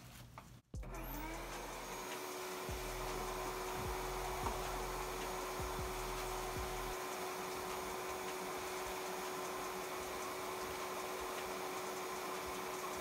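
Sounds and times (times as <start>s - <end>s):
vacuum cleaner whining: 0.8s - 13.0s.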